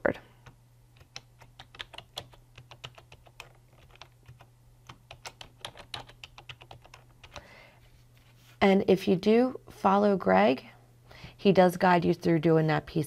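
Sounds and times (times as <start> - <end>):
computer keyboard key clicks: 0.4 - 7.4.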